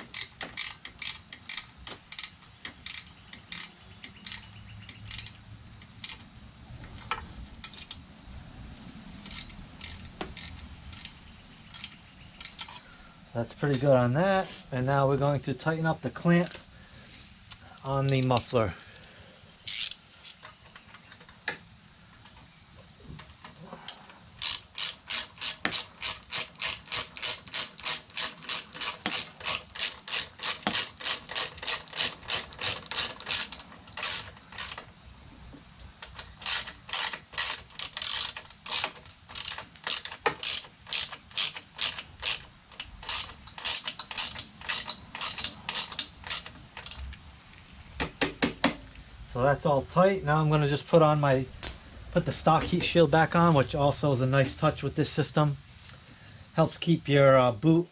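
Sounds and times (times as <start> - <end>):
ratchet wrench clicking: 0.0 - 6.2, 9.2 - 12.8, 19.7 - 20.0, 24.4 - 34.9, 36.0 - 47.1.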